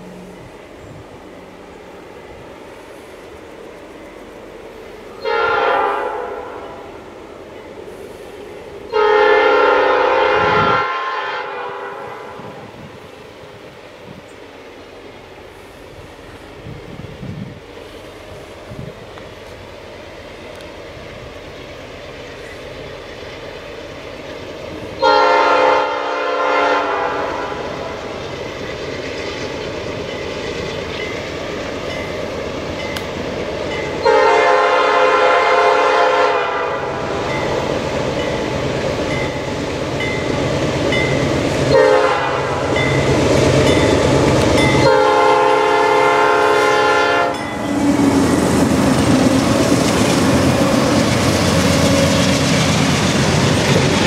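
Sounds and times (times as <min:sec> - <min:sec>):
diesel freight train rumble: 0:00.0 - 0:54.0
train wheel noise: 0:00.0 - 0:54.0
locomotive air horn: 0:05.2 - 0:06.9, 0:08.9 - 0:12.7, 0:25.0 - 0:28.0, 0:34.0 - 0:37.3, 0:41.7 - 0:42.8, 0:44.8 - 0:47.5.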